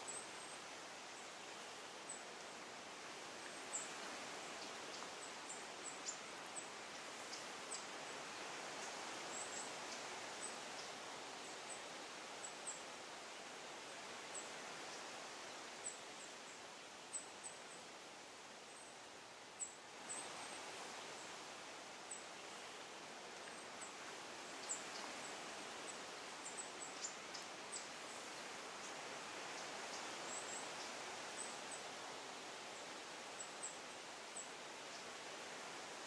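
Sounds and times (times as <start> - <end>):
steady hiss: 0.0 - 36.0.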